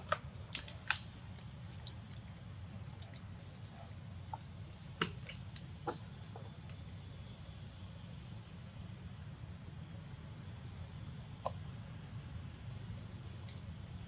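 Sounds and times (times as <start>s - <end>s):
thin high whistle: 8.6s - 9.6s.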